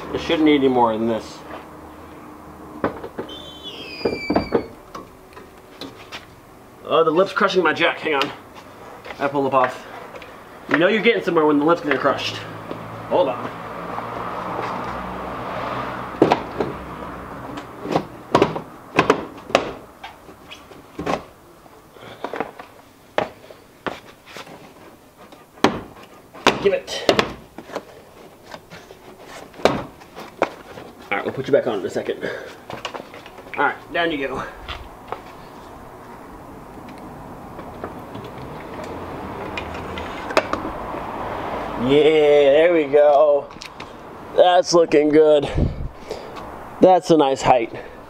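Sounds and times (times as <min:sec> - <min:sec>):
floor jack knocks and clunks: 0:16.2 - 0:16.8, 0:17.8 - 0:19.8, 0:25.6 - 0:27.9, 0:29.5 - 0:30.6.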